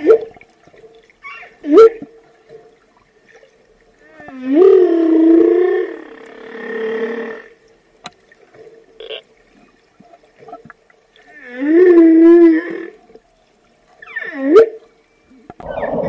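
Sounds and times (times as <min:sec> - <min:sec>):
whale moaning: 0:04.1 - 0:07.5, 0:15.6 - 0:16.0.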